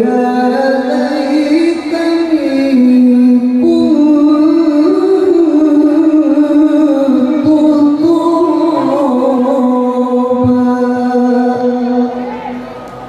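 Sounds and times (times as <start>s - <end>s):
man reciting melodically through microphone: 0.0s - 12.8s.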